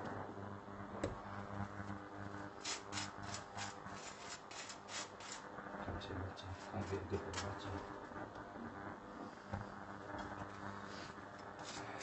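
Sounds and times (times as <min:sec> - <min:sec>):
knife scraping butter on muffin: 0:02.6 - 0:05.5, 0:11.6 - 0:12.0.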